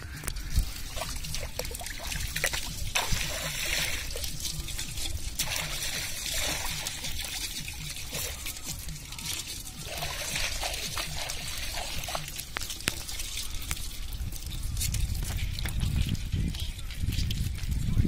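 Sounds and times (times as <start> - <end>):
fish splashing in shallow water: 0.0 - 17.6.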